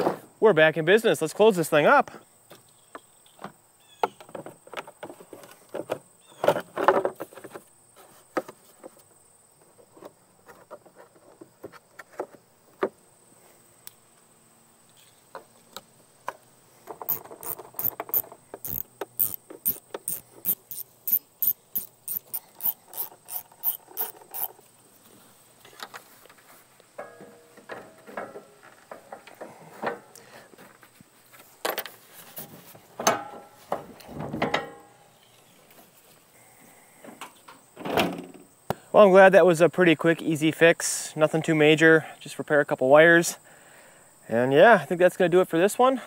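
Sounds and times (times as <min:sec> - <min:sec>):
hand tools clicking and knocking: 0:16.8 - 0:24.6, 0:27.0 - 0:30.2
ratchet clicking: 0:17.1 - 0:24.6.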